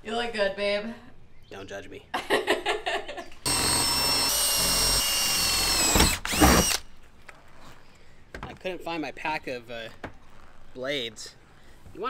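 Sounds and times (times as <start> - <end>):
cordless drill boring into sheet metal: 3.5 - 6.8.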